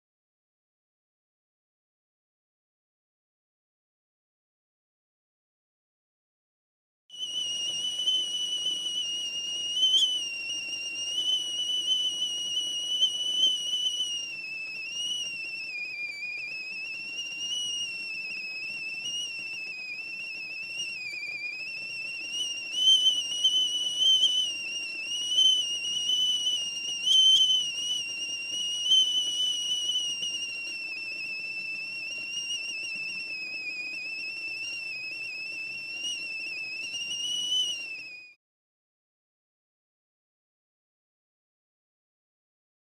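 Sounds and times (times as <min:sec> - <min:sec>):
tea kettle whistling: 0:07.1 - 0:38.4.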